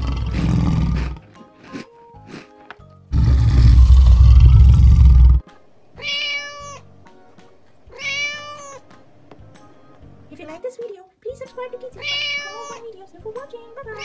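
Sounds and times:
dinosaur roar: 0.0s - 1.4s, 3.1s - 5.4s
cat meowing: 6.0s - 6.9s, 7.8s - 8.9s, 11.9s - 13.0s.

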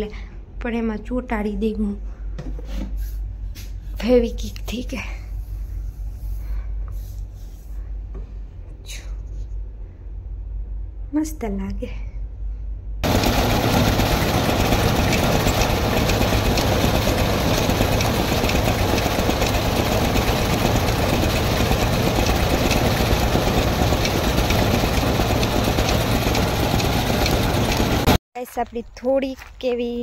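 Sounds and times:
thresher machine drone: 13.0s - 28.2s.

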